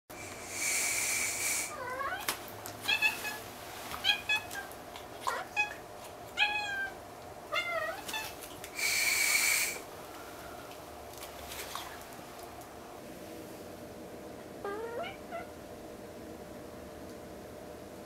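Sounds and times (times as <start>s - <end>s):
kitten hissing: 0.2s - 2.0s, 8.8s - 9.8s
kitten meowing: 14.6s - 15.5s.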